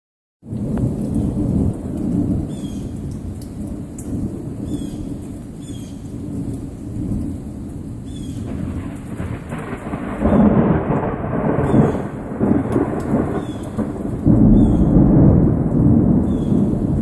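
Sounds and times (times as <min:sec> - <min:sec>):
thunder rumbling: 0:00.4 - 0:03.0, 0:08.4 - 0:17.0
steady rain: 0:00.4 - 0:17.0.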